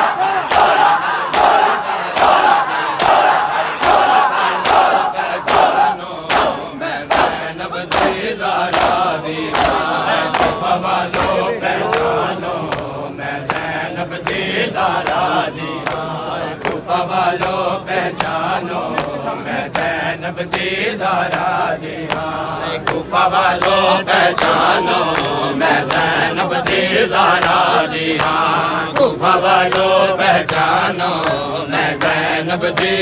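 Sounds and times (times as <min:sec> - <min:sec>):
crowd of men chanting: 0:00.0 - 0:33.0
hands slapping bare chests: 0:00.4 - 0:12.1.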